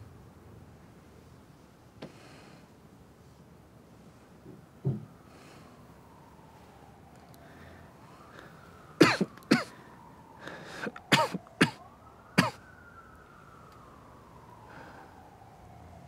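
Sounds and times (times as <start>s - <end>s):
person coughing: 9.0s - 9.8s, 11.1s - 11.8s, 12.4s - 12.6s.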